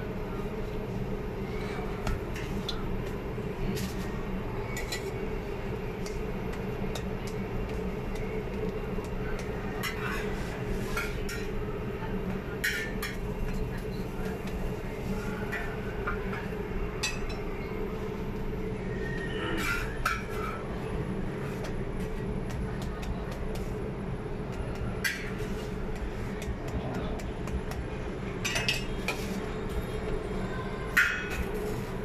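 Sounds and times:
low hum of kitchen equipment: 0.0 - 32.0
metal utensils clinking on griddle: 12.6 - 13.6.

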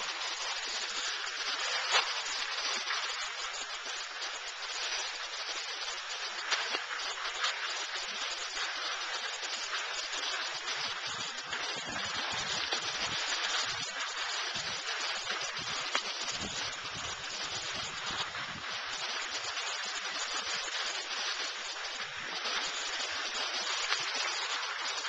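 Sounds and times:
skis sliding over snow: 0.0 - 25.0
wind buffeting microphone: 11.0 - 18.9.

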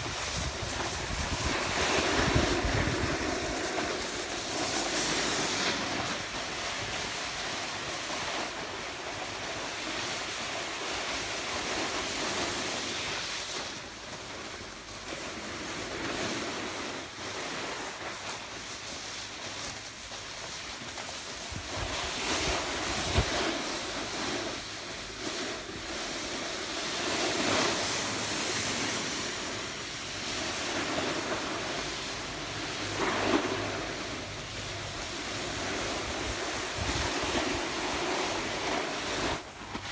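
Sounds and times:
wind buffeting microphone: 0.0 - 4.5, 21.5 - 23.7
board edges scraping on snow: 0.0 - 39.9.

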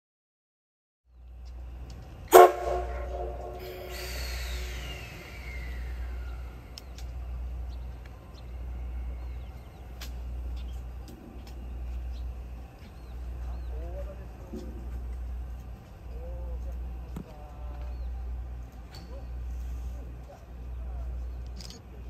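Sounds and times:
steam locomotive whistle blast: 2.3 - 6.5
hiss sliding down in pitch: 3.3 - 6.6.

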